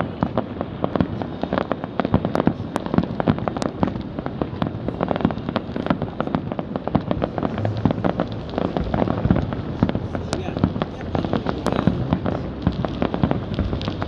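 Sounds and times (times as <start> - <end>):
fireworks cracking and banging: 0.0 - 14.0.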